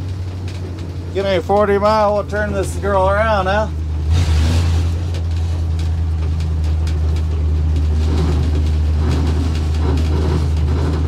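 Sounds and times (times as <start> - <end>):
truck engine running: 0.0 - 11.0
knocking or grinding noise: 4.0 - 11.0.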